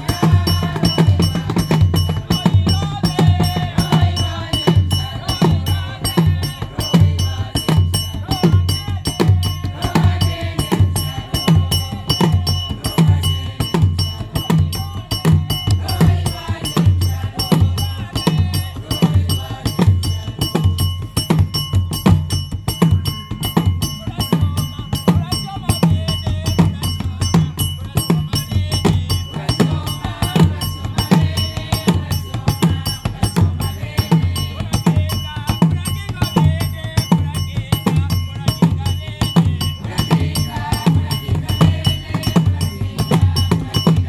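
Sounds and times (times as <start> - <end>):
choir singing: 0.0 - 20.2, 28.6 - 34.8, 39.8 - 44.0
drums and hand percussion: 0.0 - 44.0.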